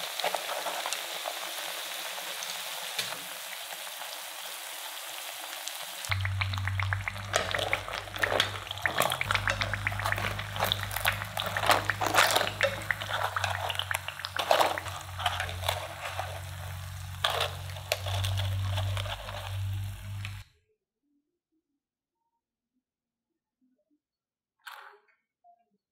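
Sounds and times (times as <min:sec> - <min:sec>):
oil bubbling and popping: 0:00.0 - 0:20.4
steady low hum: 0:06.1 - 0:20.4.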